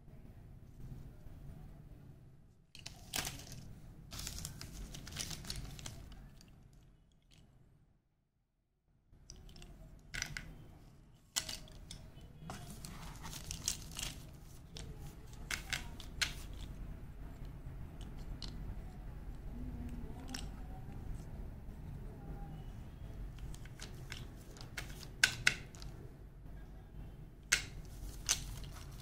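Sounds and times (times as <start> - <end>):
rustling handling noise: 2.7 - 7.5, 9.2 - 19.1, 23.2 - 26.1, 27.4 - 29.0
pencils clicking together: 2.8 - 7.4, 9.2 - 10.6, 11.3 - 16.8, 17.4 - 21.0, 23.3 - 26.0, 27.4 - 29.0.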